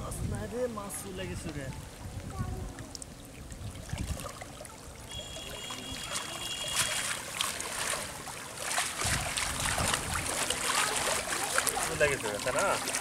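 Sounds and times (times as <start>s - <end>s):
water splashing and dripping: 0.8s - 13.0s.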